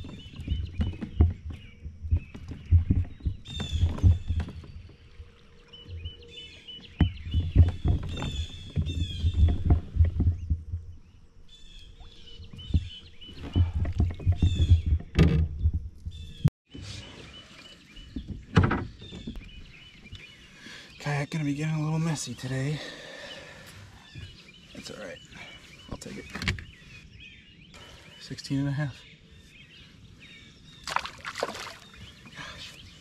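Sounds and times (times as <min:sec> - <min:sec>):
birds chirping: 0:00.0 - 0:33.0
knocks on kayak hull: 0:06.8 - 0:11.0, 0:12.5 - 0:16.2
water splashing: 0:30.8 - 0:32.6.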